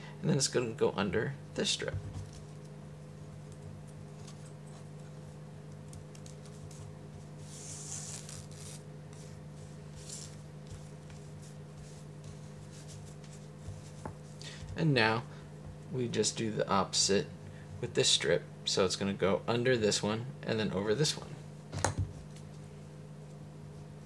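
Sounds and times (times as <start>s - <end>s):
steady low hum: 0.0s - 24.0s
paper strips rustling: 5.8s - 14.4s.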